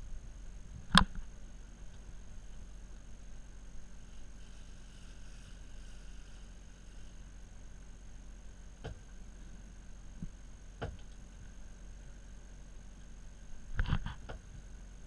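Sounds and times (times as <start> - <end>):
faint high whine: 0.0 - 15.0.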